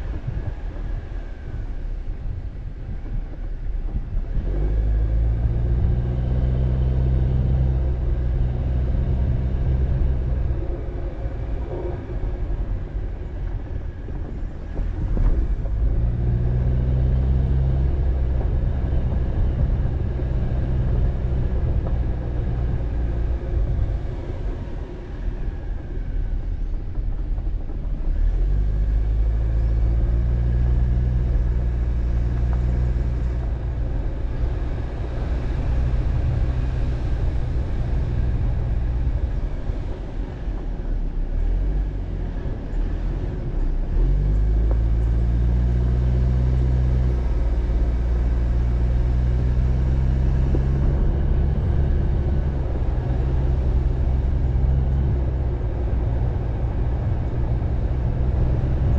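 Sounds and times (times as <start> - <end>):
car engine: 0.0 - 58.9
low road rumble: 0.0 - 58.9.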